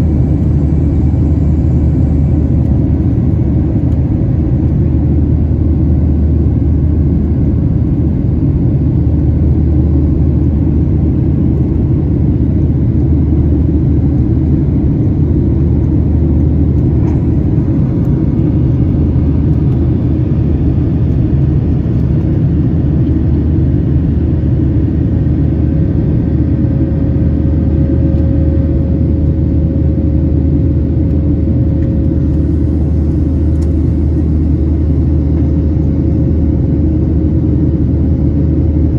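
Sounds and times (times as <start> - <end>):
faint steady hum: 0.0 - 38.9
jet engine rumble: 0.0 - 38.9.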